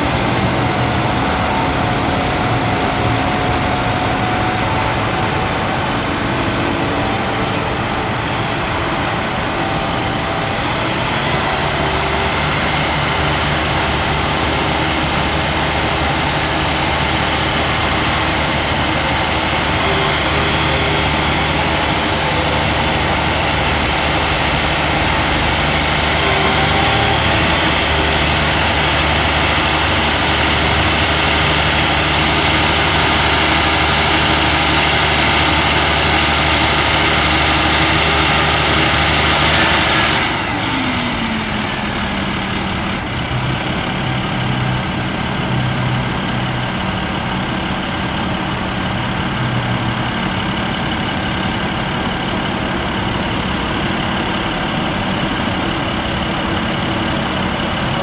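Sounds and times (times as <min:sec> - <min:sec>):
diesel truck engine revving and idling: 0:00.0 - 0:58.0.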